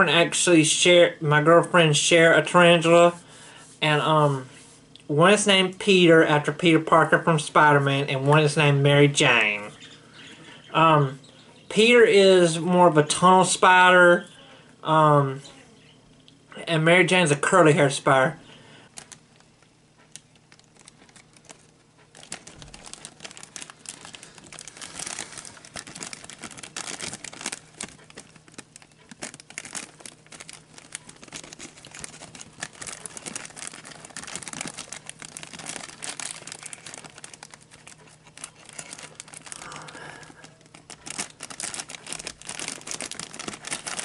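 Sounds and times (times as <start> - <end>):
plastic bag crinkling: 18.8 - 44.0.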